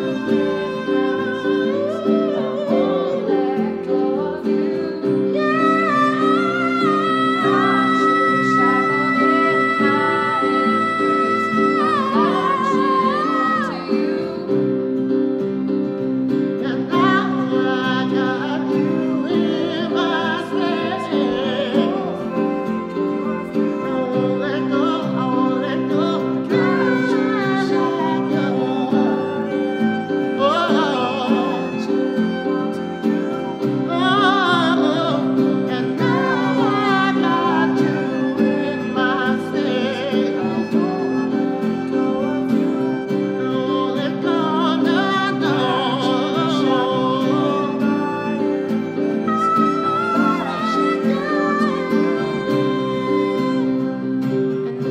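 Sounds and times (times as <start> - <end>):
electronic keyboard: 0.0 - 54.9
strummed acoustic guitar: 0.0 - 54.9
violin: 0.0 - 54.9.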